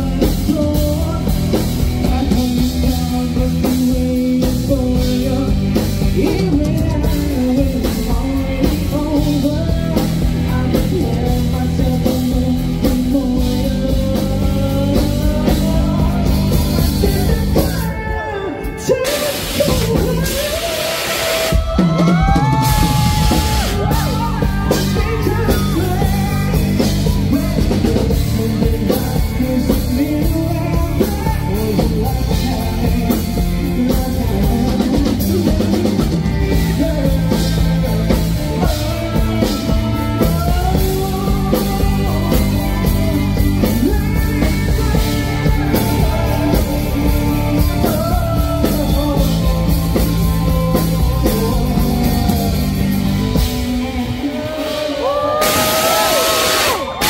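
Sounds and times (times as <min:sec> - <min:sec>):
live rock band playing: 0:00.0 - 0:57.0
man singing into microphone: 0:00.0 - 0:57.0.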